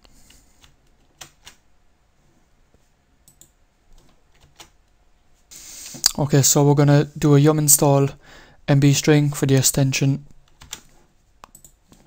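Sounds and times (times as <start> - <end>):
computer mouse clicks: 3.2 - 4.8, 10.5 - 11.8.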